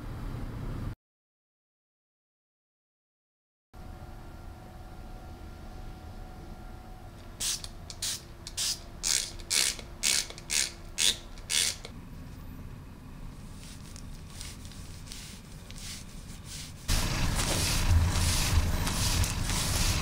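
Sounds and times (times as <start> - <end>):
hand rubbing cat's fur: 13.4 - 20.0.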